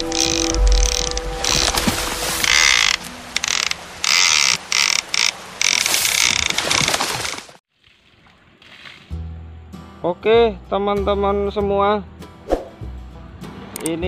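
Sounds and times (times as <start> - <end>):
fishing reel drag ratcheting: 0.0 - 1.8, 2.4 - 6.8.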